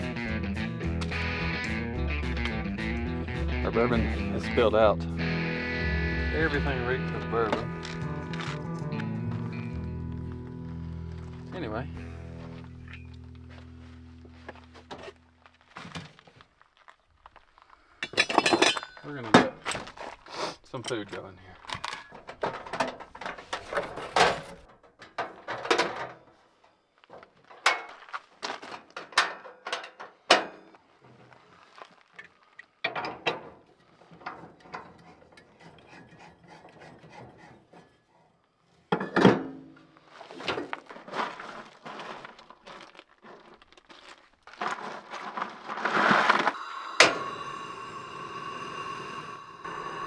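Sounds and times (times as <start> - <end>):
camping gear knocks and clatters: 18.0 - 20.2, 20.9 - 26.4, 27.1 - 31.4, 38.9 - 46.4
camp stove gas hiss: 46.5 - 50.0.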